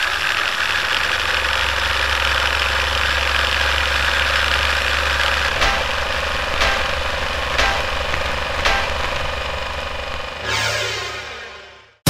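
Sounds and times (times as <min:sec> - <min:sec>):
film projector clatter and whir: 0:00.0 - 0:10.4
low hum: 0:04.8 - 0:12.0.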